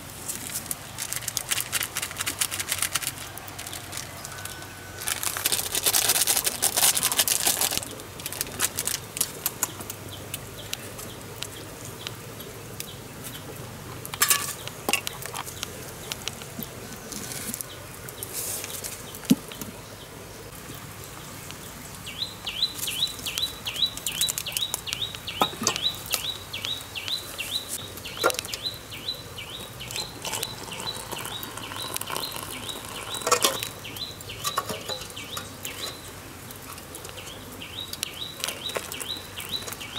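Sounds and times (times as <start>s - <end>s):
plastic packet tearing and crinkling: 0.2s - 9.8s
water poured into plastic mug: 29.9s - 33.8s.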